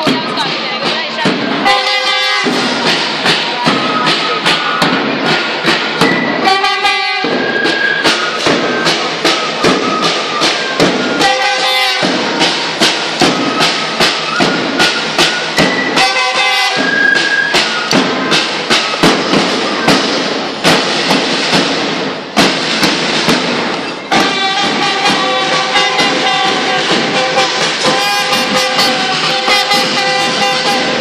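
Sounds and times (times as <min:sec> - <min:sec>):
marching drums: 0:00.0 - 0:31.0
brass horns playing tune: 0:01.6 - 0:02.8, 0:06.4 - 0:07.4, 0:10.4 - 0:12.7, 0:14.8 - 0:17.6, 0:24.1 - 0:31.0.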